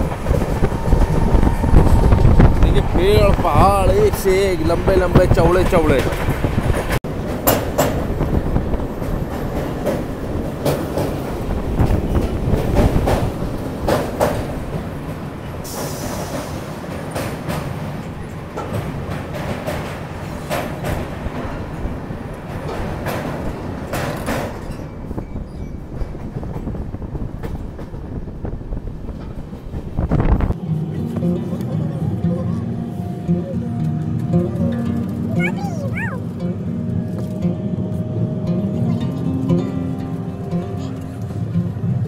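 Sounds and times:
wheels clacking over rail joints: 0:00.0 - 0:28.4
train wheels rumbling on rails: 0:00.0 - 0:42.0.

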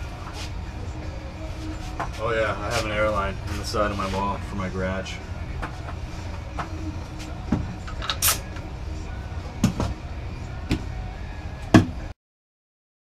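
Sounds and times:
low steady hum: 0:00.0 - 0:12.1
short sharp hiss: 0:08.2 - 0:08.5.

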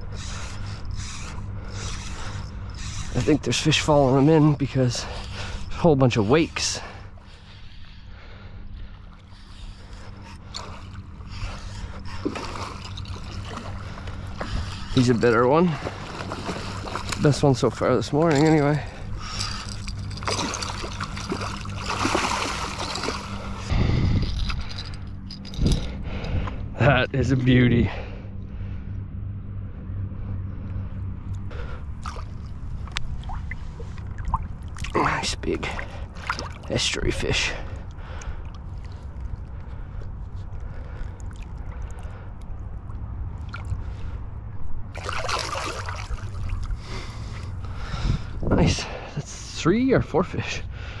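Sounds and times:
low rumble: 0:00.0 - 0:51.0
water trickling and splashing: 0:09.0 - 0:24.9, 0:32.0 - 0:40.0, 0:44.9 - 0:47.3
short low rumble: 0:18.8 - 0:34.9
faint water drips: 0:37.6 - 0:43.9.

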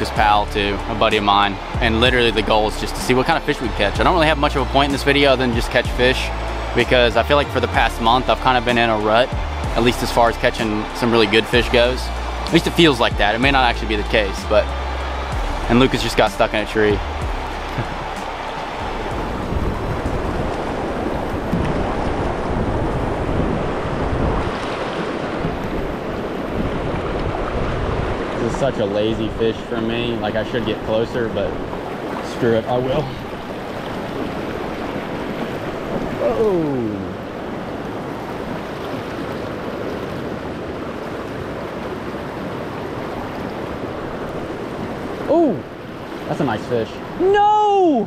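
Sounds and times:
river rushing over rocks: 0:00.0 - 0:48.0
wind rumble on microphone: 0:18.8 - 0:46.2.

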